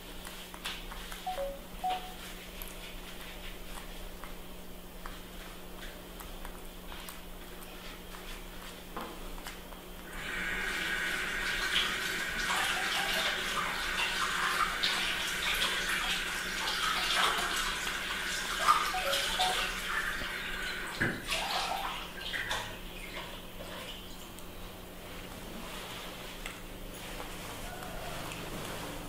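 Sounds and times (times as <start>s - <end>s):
running water: 10.1s - 24.2s.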